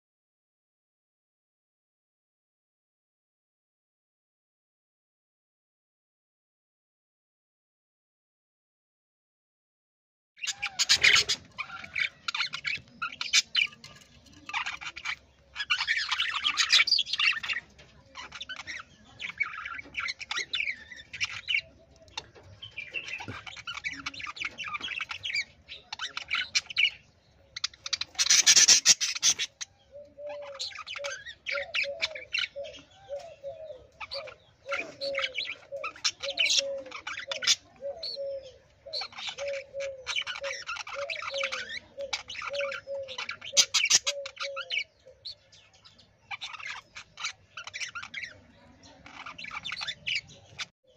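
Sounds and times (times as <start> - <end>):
budgerigars chattering: 10.4 - 50.9.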